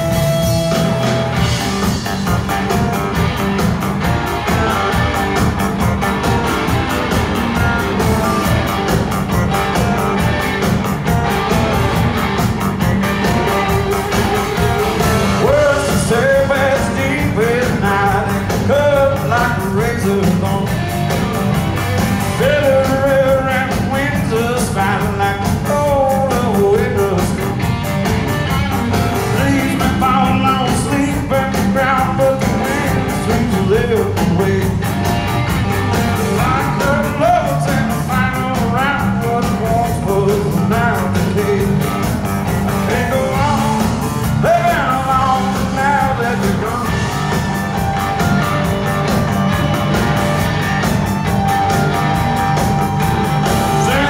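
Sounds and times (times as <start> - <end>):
electric guitar: 0.0 - 54.0
live rock band: 0.0 - 54.0
person singing: 13.3 - 20.9, 22.3 - 27.6, 29.1 - 34.9, 36.2 - 42.2, 42.8 - 47.4, 53.5 - 54.0.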